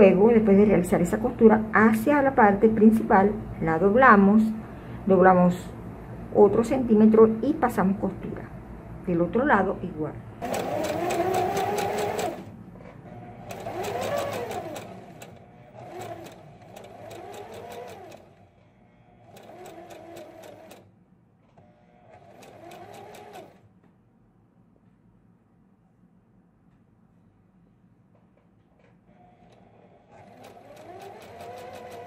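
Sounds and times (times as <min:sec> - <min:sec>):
sewing machine stitching: 0:10.4 - 0:18.5, 0:19.2 - 0:23.6, 0:29.1 - 0:32.0.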